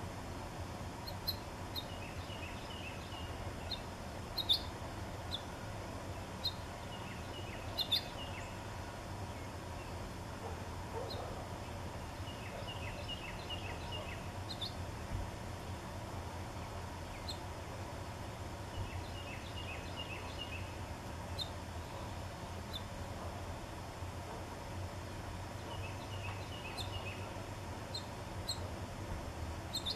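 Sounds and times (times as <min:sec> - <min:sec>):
songbirds chirping: 0:00.0 - 0:29.9
steady low hum: 0:00.0 - 0:29.9.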